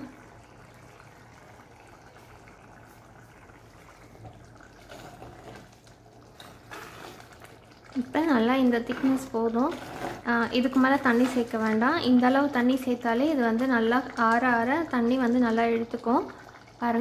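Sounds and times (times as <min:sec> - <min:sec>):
curry bubbling in a pot: 0:00.0 - 0:17.0
metal ladle stirring: 0:06.3 - 0:07.5, 0:08.7 - 0:11.7.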